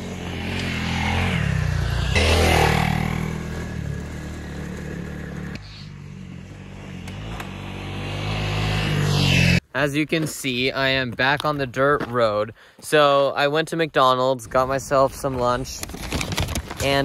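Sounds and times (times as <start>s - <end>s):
motorcycle engine revving: 0.0s - 9.6s.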